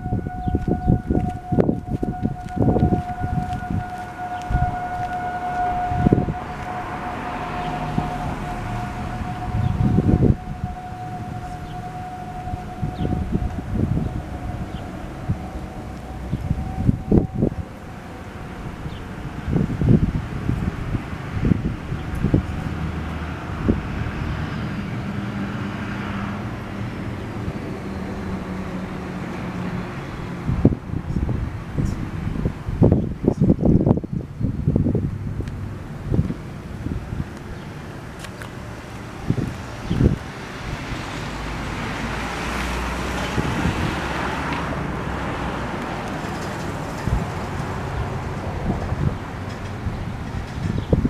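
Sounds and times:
faint siren tone falling: 0.0s - 24.8s
car passing: 0.0s - 33.2s, 34.6s - 51.0s
street traffic: 0.0s - 51.0s
wind rumble on microphone: 0.0s - 51.0s.

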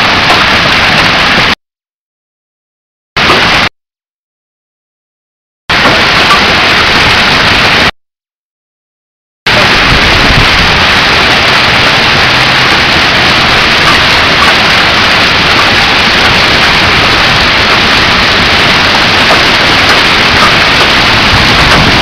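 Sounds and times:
hail and heavy rain pelting: 0.0s - 1.6s, 5.7s - 7.9s, 9.5s - 22.0s.

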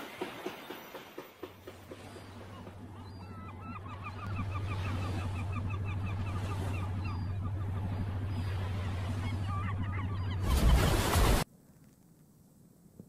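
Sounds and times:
gulls calling: 0.2s - 11.4s
boat engine chugging: 1.2s - 10.6s.

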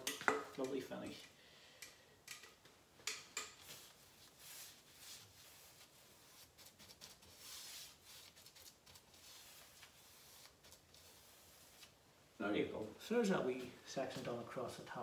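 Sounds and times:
paintbrush swishes: 3.6s - 12.0s.

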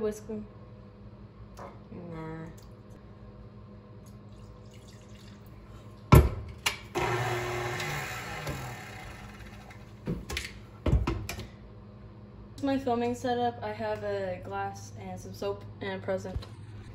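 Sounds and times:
stand mixer whirring: 7.0s - 9.9s.

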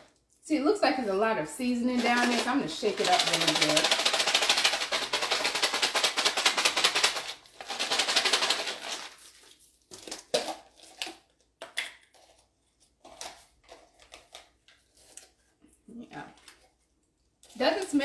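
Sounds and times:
nuts rattling in plastic tub: 1.8s - 9.2s.

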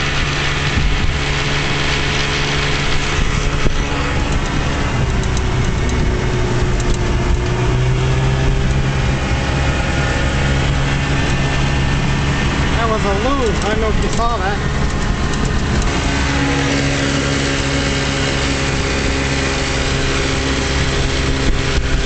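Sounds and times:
outboard motor running at high speed: 0.0s - 22.0s
water rushing off boat hull: 0.0s - 22.0s.

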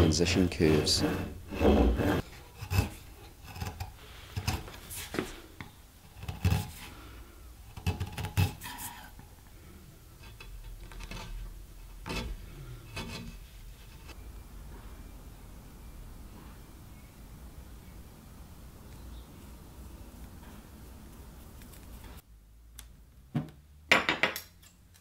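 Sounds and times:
hand saw rasping through wood: 0.5s - 4.7s.

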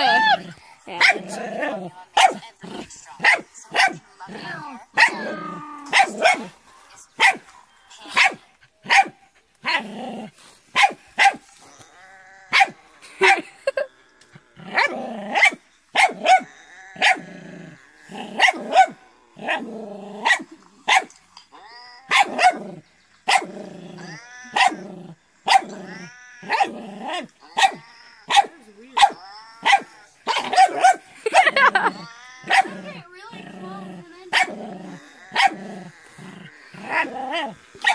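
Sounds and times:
puppy barking: 1.0s - 1.4s, 2.2s - 2.4s, 3.2s - 4.0s, 5.0s - 6.6s, 7.2s - 7.4s, 8.1s - 9.8s, 10.7s - 11.6s, 12.5s - 13.5s, 14.8s - 17.3s, 18.4s - 19.6s, 20.2s - 21.2s, 22.1s - 22.7s, 23.3s - 23.5s, 24.5s - 24.9s, 25.5s - 25.8s, 26.4s - 33.0s, 33.7s - 34.6s, 35.2s - 35.7s.

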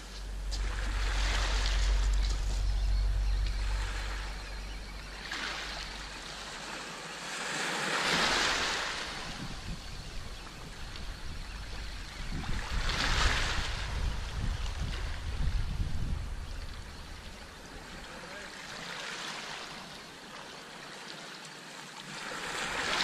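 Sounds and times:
wind rumbling on microphone: 0.0s - 6.6s, 8.2s - 18.1s
waves washing on pebble shore: 0.3s - 2.8s, 5.2s - 9.7s, 22.0s - 23.0s.

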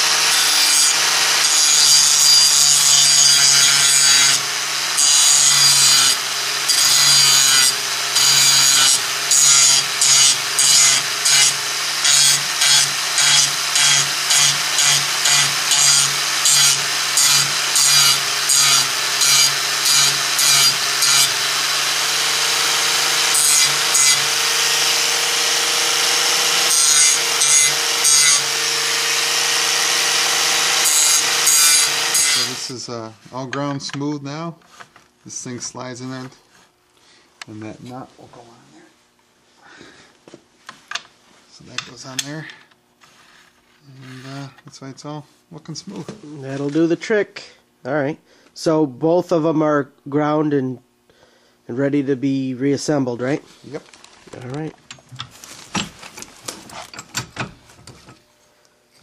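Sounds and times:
angle grinder grinding metal: 0.0s - 32.9s, 43.8s - 44.5s.

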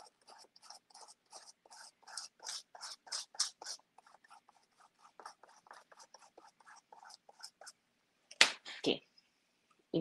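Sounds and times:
stiff brush scrubbing paper: 0.0s - 7.8s.

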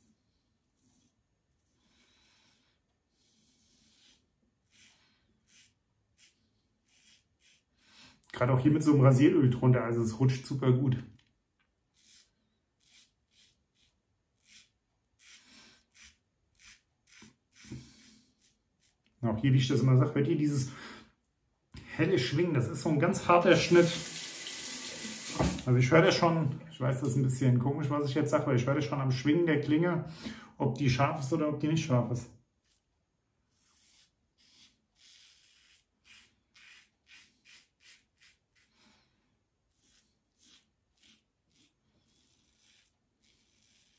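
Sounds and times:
razor scraping stubble: 3.2s - 7.8s, 11.9s - 19.2s, 32.6s - 38.7s, 39.7s - 43.9s.

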